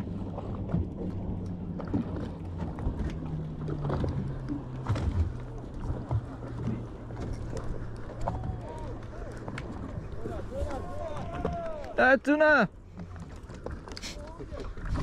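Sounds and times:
boat engines idling: 0.0 - 15.0.

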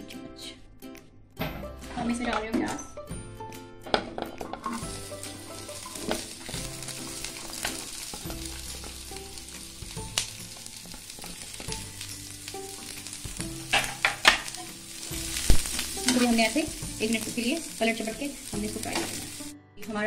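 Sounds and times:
onion sizzling in oil: 4.7 - 19.6.

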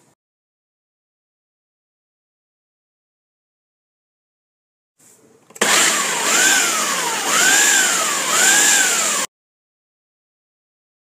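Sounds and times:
blender motor whine: 5.6 - 9.3.

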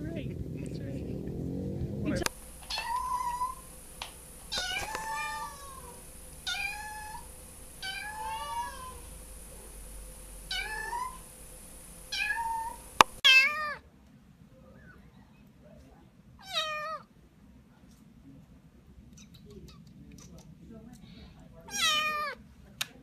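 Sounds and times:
kitten meowing: 2.0 - 3.7, 4.5 - 9.1, 10.5 - 11.2, 12.1 - 13.8, 21.7 - 22.4.

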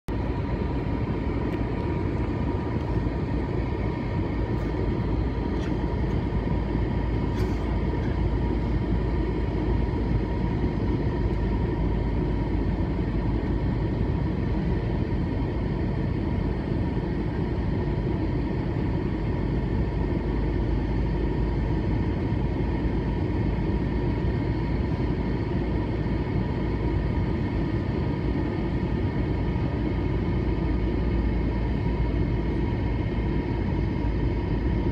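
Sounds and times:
airliner cabin roar: 0.1 - 34.9
faint steady whine: 0.1 - 34.9.

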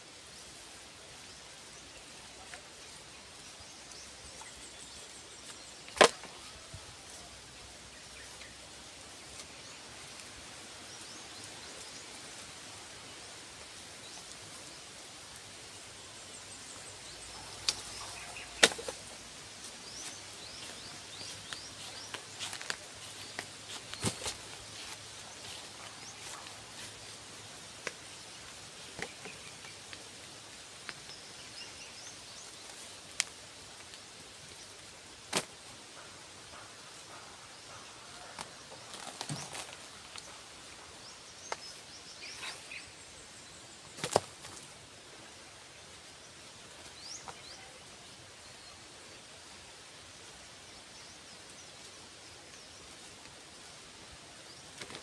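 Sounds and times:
outdoor background noise: 0.0 - 55.0
bamboo pieces clattering: 5.4 - 6.6, 17.6 - 19.2.

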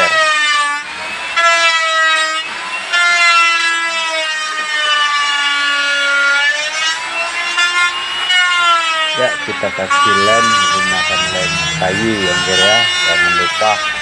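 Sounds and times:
melody of long held notes: 9.9 - 13.6.

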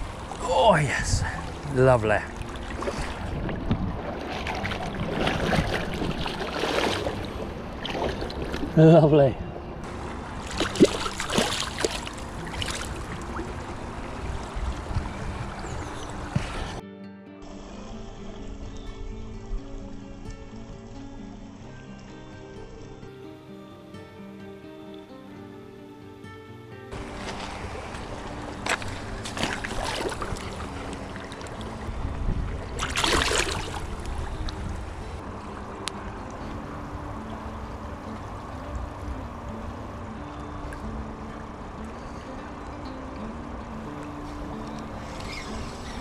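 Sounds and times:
shallow river water trickling: 0.0 - 16.8, 17.5 - 25.1, 26.9 - 46.0
net splashing in water: 4.0 - 8.7, 10.4 - 13.4, 28.6 - 31.5, 32.8 - 34.0.

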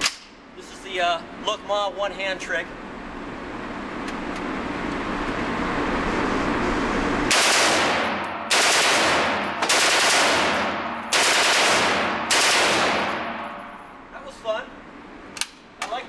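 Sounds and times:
rifle shots echoing: 7.3 - 13.8.

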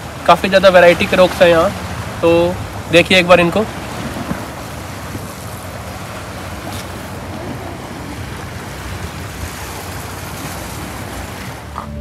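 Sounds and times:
waves washing against rocks: 0.0 - 11.9
wind rumbling on microphone: 3.6 - 12.0.

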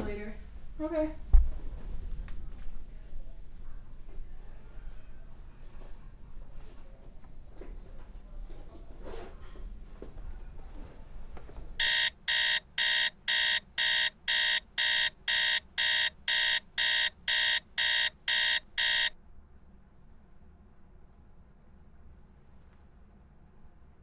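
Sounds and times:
electronic alarm beeping: 11.8 - 19.2.

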